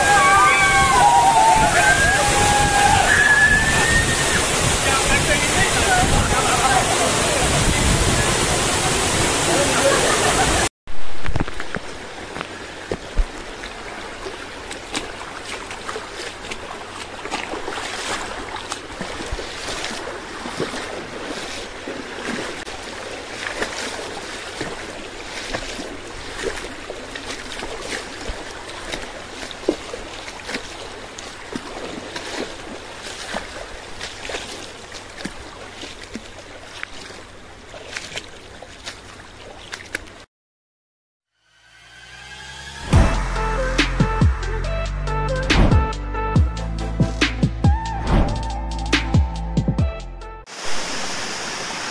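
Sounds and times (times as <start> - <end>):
splashes of people wading: 0.0 - 40.3
stream burbling over stones: 0.0 - 40.3, 50.5 - 51.9.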